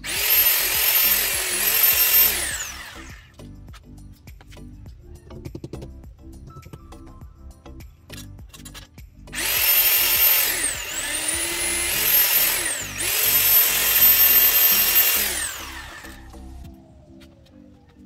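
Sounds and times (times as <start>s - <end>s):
electric drill boring into wall: 0.0s - 3.3s, 9.4s - 16.7s.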